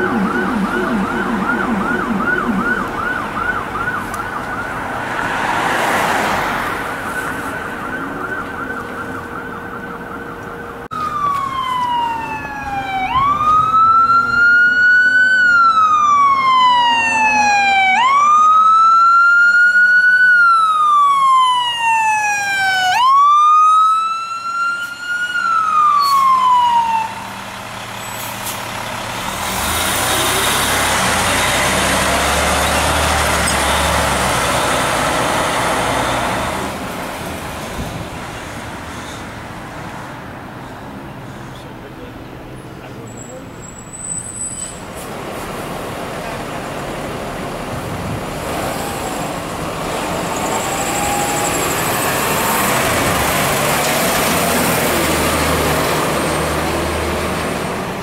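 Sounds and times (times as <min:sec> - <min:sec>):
fire engine siren: 0:00.0 - 0:36.8, 0:46.4 - 0:58.0
diesel engine passing by: 0:23.7 - 0:58.0.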